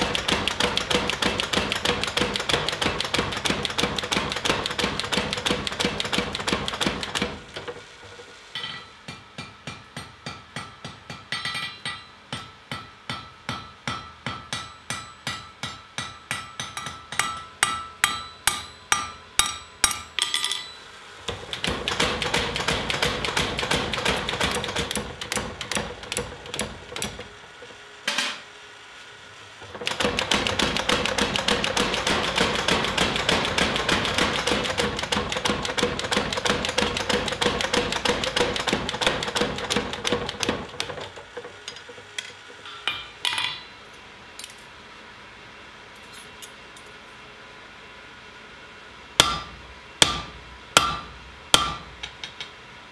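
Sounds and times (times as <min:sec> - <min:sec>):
fast hammering: 0:00.0 - 0:07.4, 0:21.3 - 0:27.2, 0:29.8 - 0:41.0, 0:49.2 - 0:52.2
hammer striking steel on anvil: 0:08.5 - 0:20.9, 0:42.6 - 0:43.8, 0:49.2 - 0:52.5.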